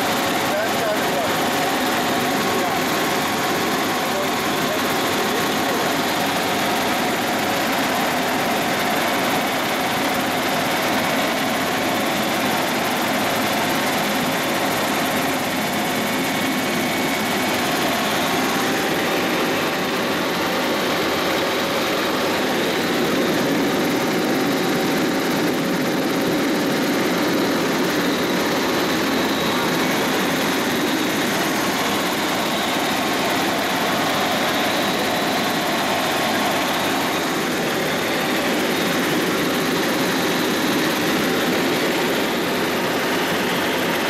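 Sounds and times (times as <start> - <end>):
helicopter cabin noise: 0.0 - 44.0.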